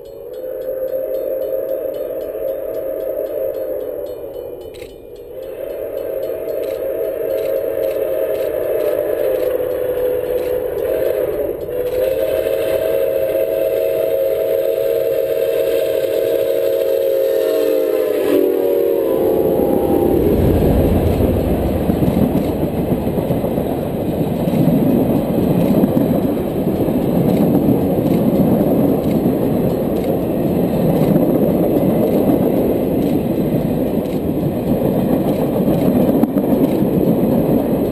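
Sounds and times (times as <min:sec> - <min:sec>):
faint clicks: 0:00.0 - 0:12.2, 0:20.4 - 0:37.9
steam whistle: 0:00.0 - 0:32.8
train wheels rumbling and rattling: 0:00.0 - 0:37.9.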